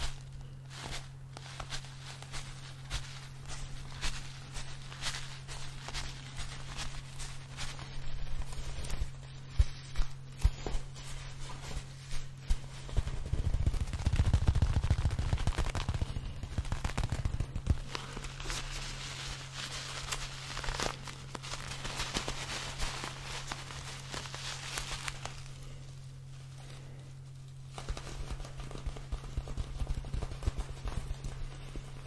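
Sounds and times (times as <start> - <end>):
hands handling plush toys: 0.0 - 25.6
steady low hum: 0.0 - 32.0.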